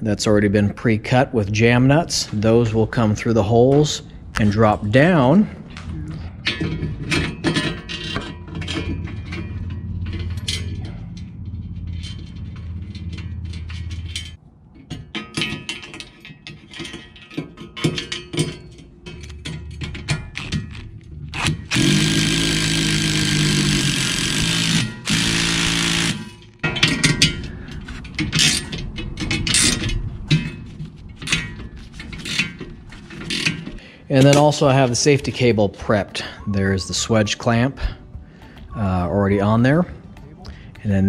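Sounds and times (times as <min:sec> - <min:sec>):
clinking steel parts: 0:03.7 - 0:38.7
impact driver hammering bolt: 0:21.4 - 0:26.5.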